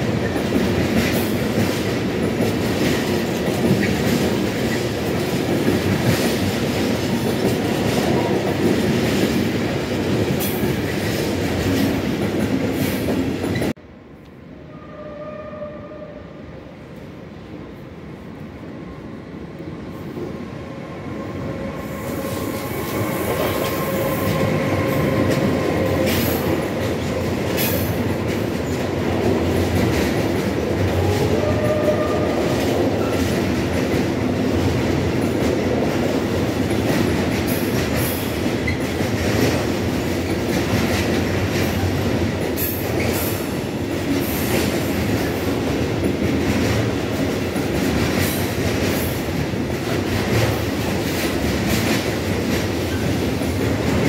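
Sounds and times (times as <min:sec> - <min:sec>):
train rumbling past: 0:00.0 - 0:54.0.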